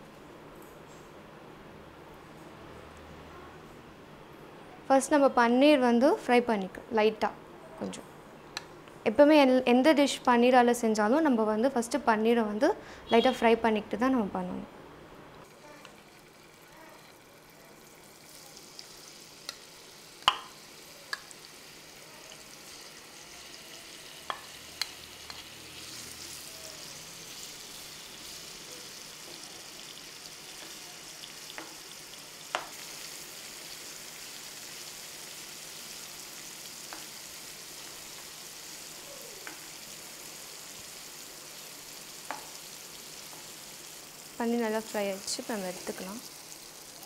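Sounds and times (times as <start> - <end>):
cheese sizzling in hot oil: 15.4 - 47.0.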